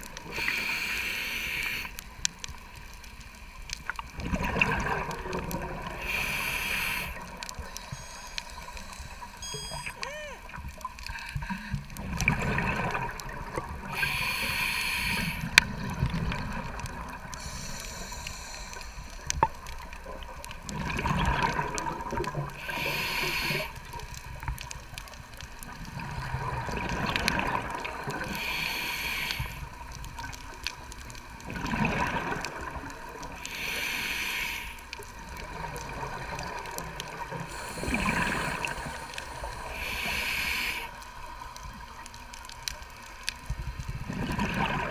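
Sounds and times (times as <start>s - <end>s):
inhale hiss: 0.1s - 2.2s, 5.7s - 12.0s, 13.8s - 16.2s, 17.2s - 19.9s, 22.4s - 24.2s, 28.1s - 30.3s, 33.3s - 35.2s, 37.4s - 42.1s
diver breathing through regulator: 0.3s - 2.0s, 5.9s - 10.4s, 13.9s - 15.6s, 17.4s - 19.3s, 22.6s - 23.9s, 28.2s - 29.7s, 33.4s - 34.9s, 37.5s - 41.0s
exhaled bubbles underwater: 3.9s - 33.7s, 34.9s - 44.9s.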